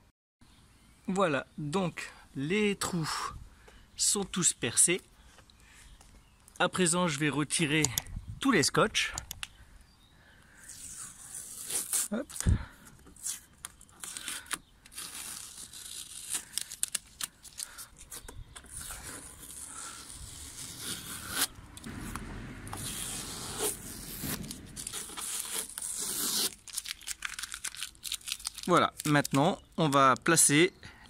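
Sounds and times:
masking tape being peeled: 10.5s - 12.4s, 13.0s - 30.0s.

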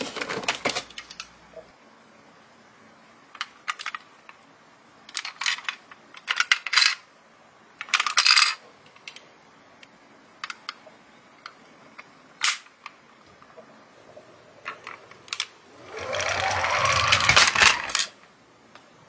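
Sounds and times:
toy car rattling: 14.7s - 18.2s.

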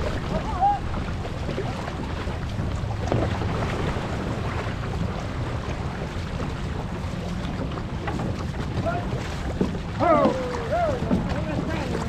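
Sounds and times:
water splashing along hull: 0.0s - 12.0s
wind buffeting microphone: 0.0s - 12.0s.

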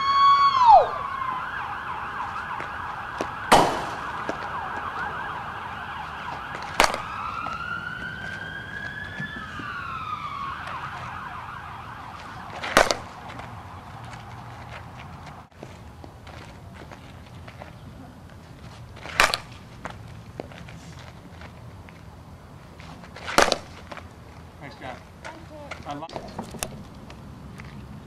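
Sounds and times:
emergency siren wailing: 0.0s - 15.5s
bat cracking ball: 2.6s - 5.3s, 6.3s - 11.2s, 12.0s - 14.9s, 19.0s - 19.9s, 23.2s - 24.0s.

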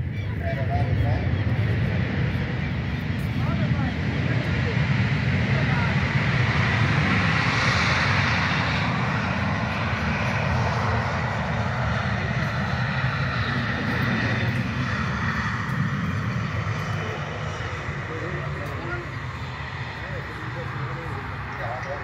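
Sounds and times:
jet engines at taxi power: 0.0s - 22.0s.

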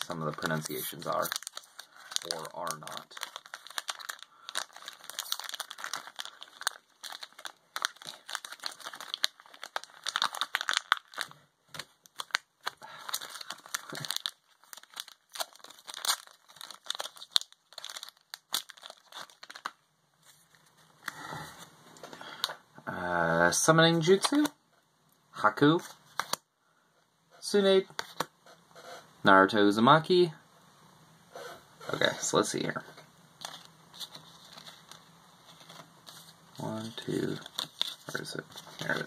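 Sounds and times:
foil wrapper crinkling and tearing: 0.0s - 21.2s, 33.4s - 39.0s.

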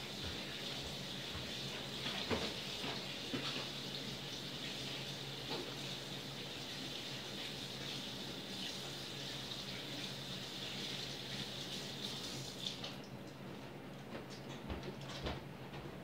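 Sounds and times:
tap water running into sink: 0.0s - 13.1s.

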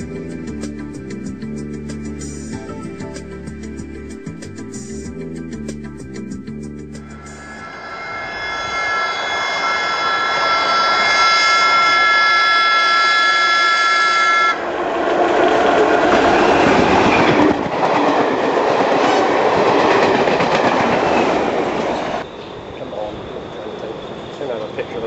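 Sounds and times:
train horn: 7.2s - 14.6s
train wheels rumbling on rails: 14.6s - 25.0s.

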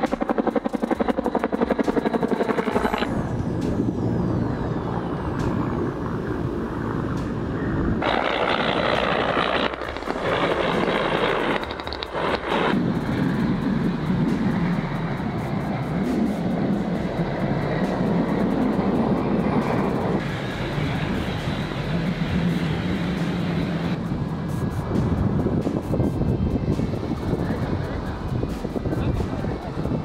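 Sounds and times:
helicopter flying past: 0.0s - 30.0s
low engine drone: 0.0s - 30.0s
loud rushing hiss: 8.0s - 26.2s.

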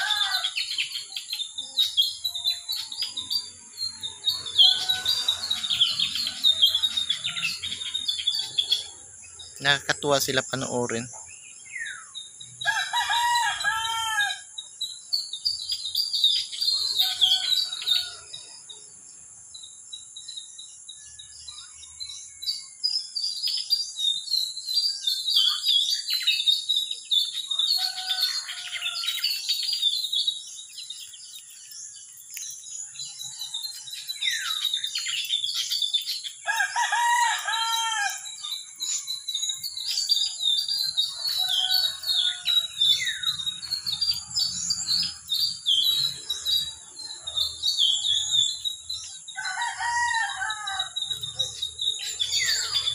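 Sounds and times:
rooster crowing: 0.0s - 0.6s, 4.3s - 7.7s, 12.6s - 14.5s, 16.8s - 18.4s, 27.5s - 29.7s, 36.4s - 38.5s, 41.0s - 43.7s, 49.4s - 51.3s
small birds chirping: 0.0s - 52.9s.

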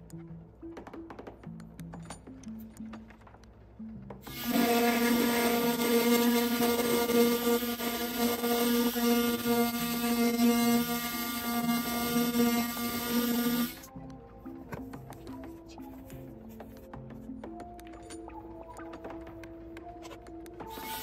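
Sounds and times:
rotary tool motor hum: 4.2s - 13.9s, 20.7s - 21.0s.

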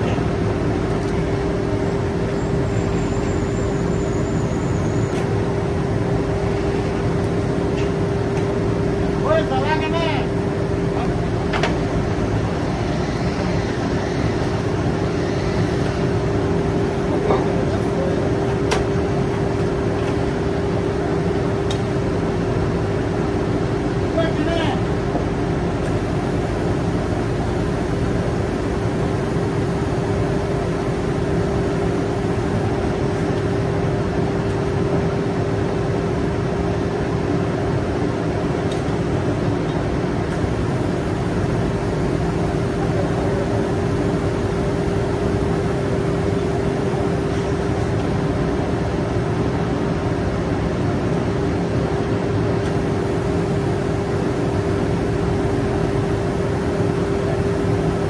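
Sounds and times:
drilling rig machinery drone: 0.0s - 58.0s.

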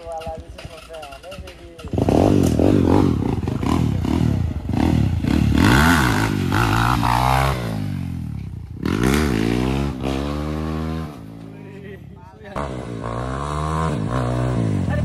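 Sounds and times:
small motorcycle engine revving: 1.9s - 11.4s, 12.6s - 15.0s.

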